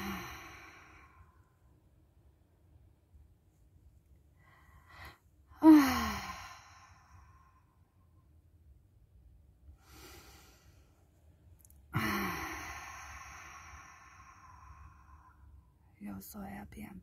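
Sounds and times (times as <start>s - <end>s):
person sighing: 0.0s - 1.2s, 5.6s - 7.1s, 12.0s - 15.2s
faint breath: 0.0s - 1.5s, 4.4s - 7.8s, 9.7s - 11.2s, 12.0s - 15.6s.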